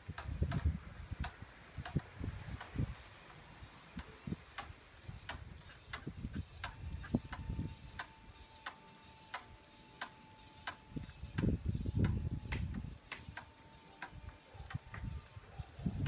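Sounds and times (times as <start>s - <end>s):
steady ticking: 4.0s - 14.8s.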